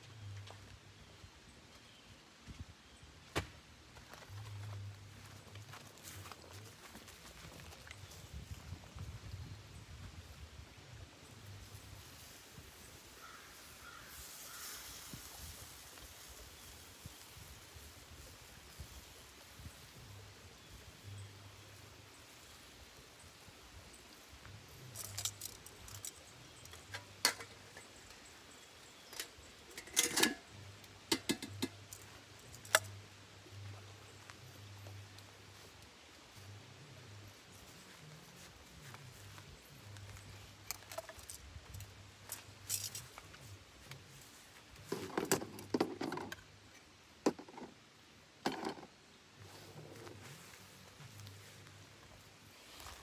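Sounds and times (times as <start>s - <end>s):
metallic clicks of grilling tools: 24.9s - 28.2s, 29.0s - 33.0s
cooking utensils clinking: 29.1s - 30.5s, 31.1s - 31.9s.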